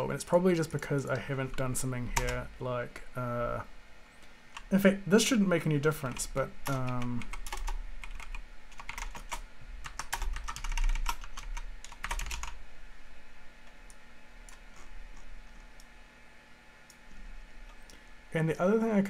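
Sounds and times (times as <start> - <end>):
keyboard typing: 6.1 - 12.6.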